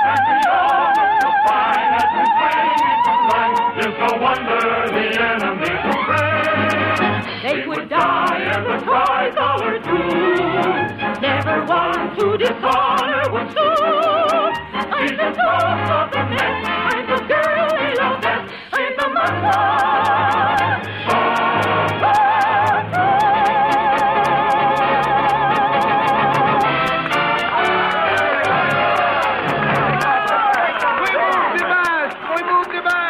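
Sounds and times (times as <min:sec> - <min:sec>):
operatic soprano singing: 0:00.0 - 0:26.8
orchestra playing: 0:05.4 - 0:08.8, 0:09.6 - 0:12.7, 0:20.2 - 0:32.4.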